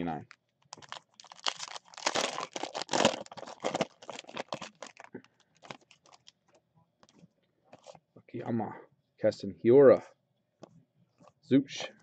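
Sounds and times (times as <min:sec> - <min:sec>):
foil wrapper crinkling and tearing: 0:00.6 - 0:06.4.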